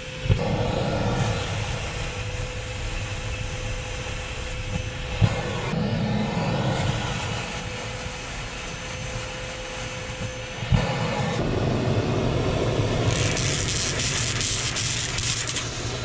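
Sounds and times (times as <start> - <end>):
vacuum cleaner running: 0.0 - 16.0
hiss of cord drawn into nozzle: 13.0 - 15.9.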